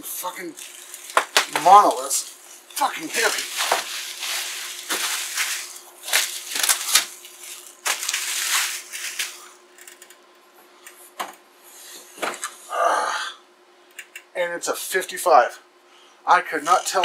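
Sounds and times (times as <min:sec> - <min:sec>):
bubble wrap crinkling: 0:00.4 - 0:09.6.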